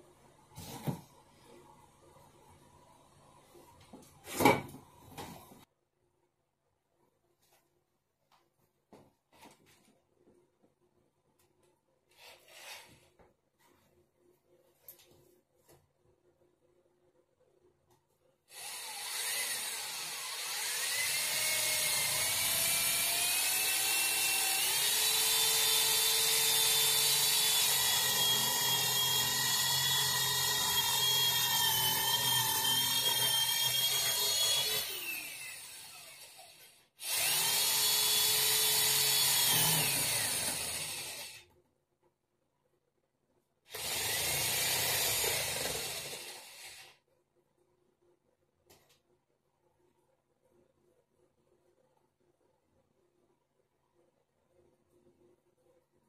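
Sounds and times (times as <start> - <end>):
electric drill boring into wood: 18.5 - 41.4, 43.7 - 47.0.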